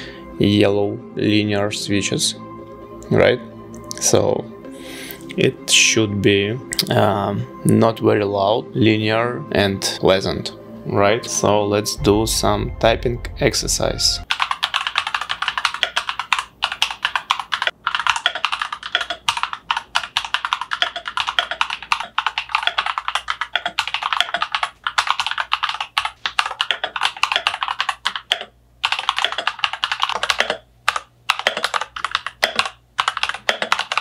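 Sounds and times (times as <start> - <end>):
mechanical keyboard typing: 14.3 - 34.0.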